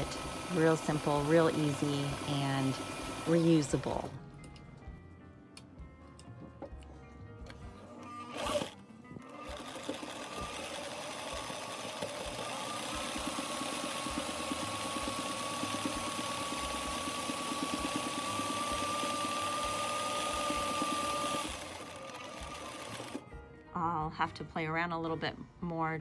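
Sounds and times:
sewing machine stitching: 0.0s - 4.1s, 8.0s - 23.2s.

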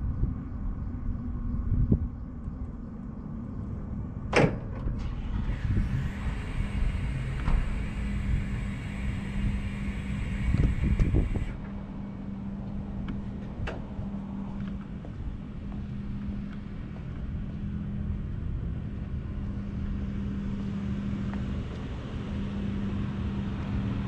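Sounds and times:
steady low hum: 0.0s - 24.0s
electric motor whir with hiss: 5.1s - 11.6s.

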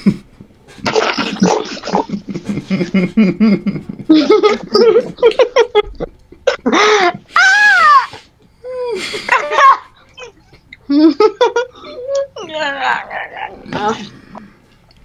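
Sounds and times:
people laughing and squealing: 9.0s - 10.5s.

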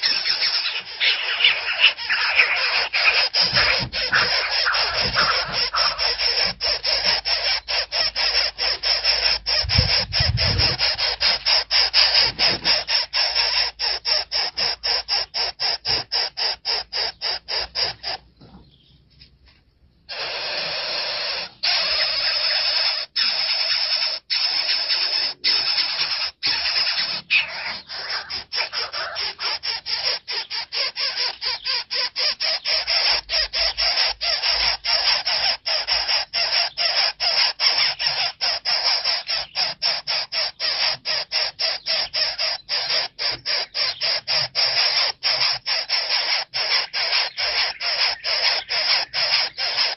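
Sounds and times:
nestlings begging calls: 0.0s - 19.0s, 20.1s - 49.9s.

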